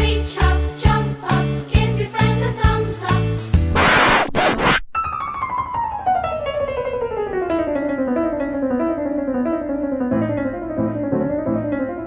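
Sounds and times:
piano music: 5.0 - 12.0.

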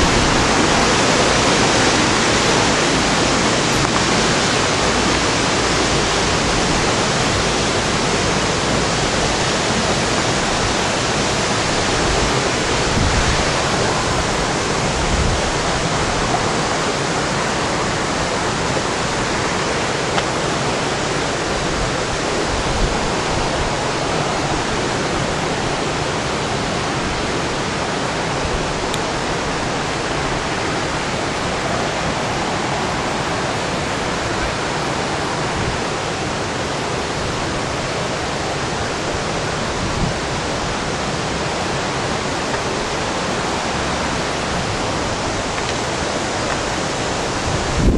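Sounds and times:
rushing water: 0.0 - 47.9.

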